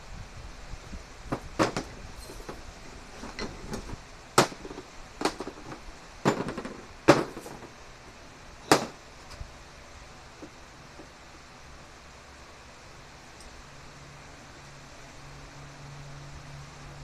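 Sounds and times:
metal tools clanking on wood: 1.6 - 2.6, 3.2 - 7.7.

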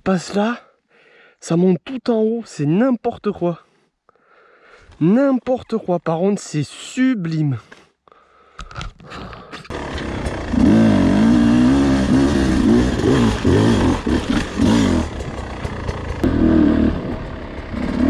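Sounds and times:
motorcycle engine revving: 9.7 - 18.0.

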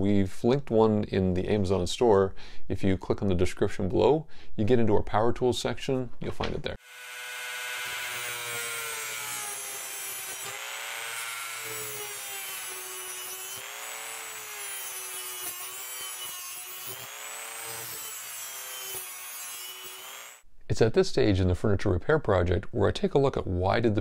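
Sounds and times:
rotary tool cutting metal: 6.8 - 20.4.

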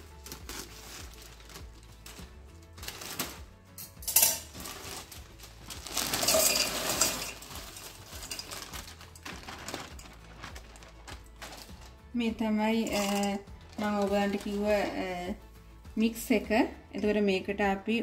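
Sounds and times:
plastic bag crinkling: 0.0 - 3.6, 4.2 - 12.2, 12.8 - 15.2
frozen vegetables clattering in metal pot: 0.0 - 15.2.

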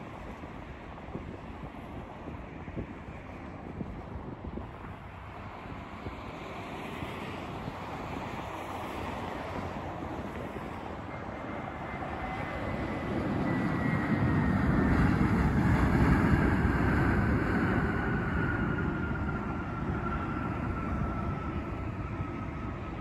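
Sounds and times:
jet engines rumbling: 4.8 - 23.0.

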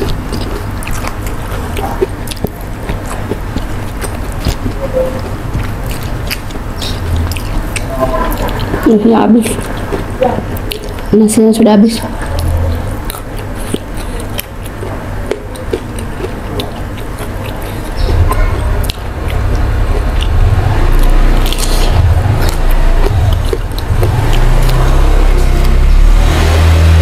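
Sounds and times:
crunchy chewing of raw vegetables: 0.0 - 11.2, 11.9 - 27.0.

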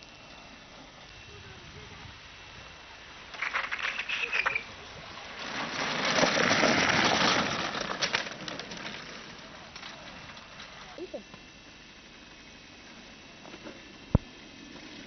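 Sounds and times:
kart rolling noise: 0.0 - 15.0
kart wheels and frame clattering: 3.2 - 11.5
sharp clicks and rattles: 3.3 - 4.7, 5.7 - 11.0
wheel squeal: 3.3 - 11.0.

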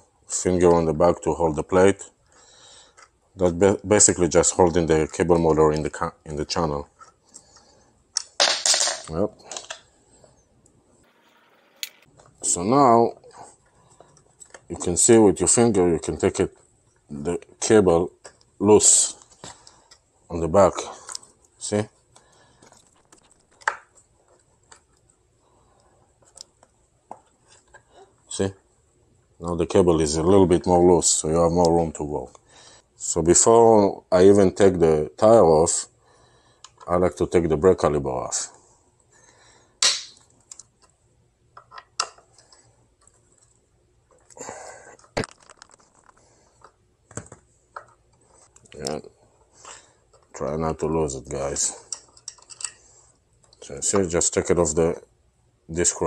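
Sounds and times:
small clicks and rustles: 41.6 - 44.4, 45.0 - 49.0.

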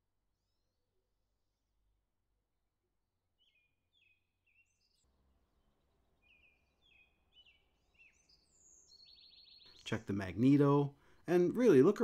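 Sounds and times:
faint low background noise: 0.0 - 12.0
faint bird chirps: 3.4 - 5.1, 5.7 - 10.0.

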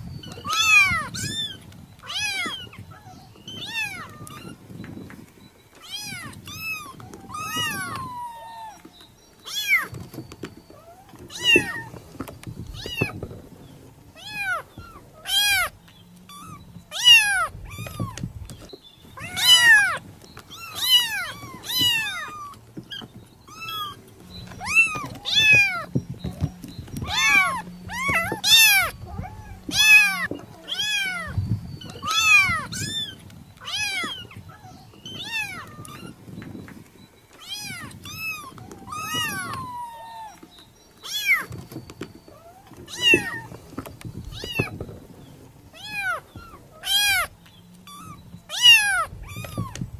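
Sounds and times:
kitten meowing: 0.3 - 4.6, 5.8 - 8.9, 11.3 - 12.0, 14.2 - 15.7, 16.3 - 18.2, 19.2 - 24.0, 24.6 - 25.9, 27.0 - 36.2, 37.4 - 41.6, 42.4 - 43.5, 45.8 - 47.3, 47.9 - 49.8.

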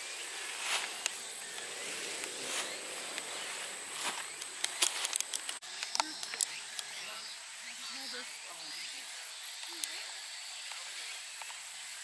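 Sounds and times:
grass rustling: 0.0 - 11.6
insects chirring: 0.0 - 12.0
cluster of clicks: 0.7 - 2.4, 3.0 - 3.4, 4.0 - 7.0, 9.5 - 11.6.

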